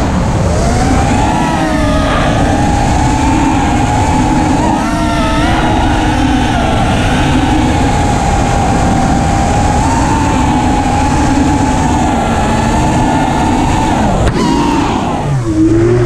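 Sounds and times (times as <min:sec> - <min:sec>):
drone motors whining: 0:00.0 - 0:16.0
wind noise: 0:00.0 - 0:16.0.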